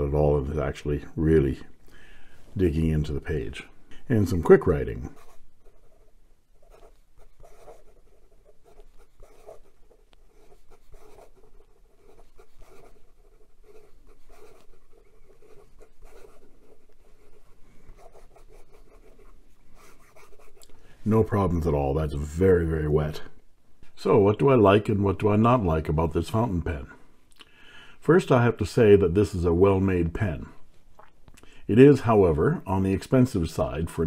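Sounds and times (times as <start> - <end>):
fountain pen writing on paper: 5.2 - 20.6.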